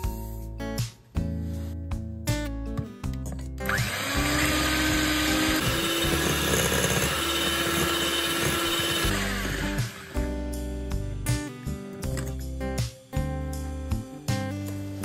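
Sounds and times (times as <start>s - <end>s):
background music: 0.0s - 15.0s
electric hand mixer whisking: 3.7s - 10.4s.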